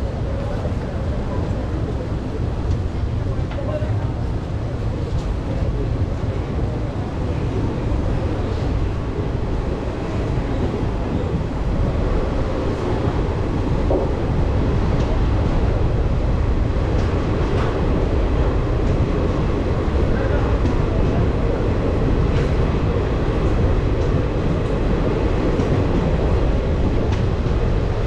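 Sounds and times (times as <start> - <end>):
train rumbling: 0.0 - 28.0.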